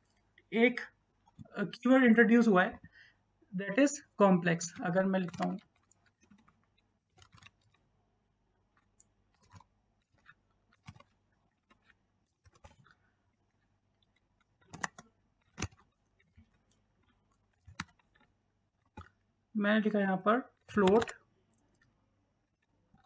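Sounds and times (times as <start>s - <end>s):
keyboard keystroke clicks: 14.6s - 16.6s, 20.7s - 21.2s.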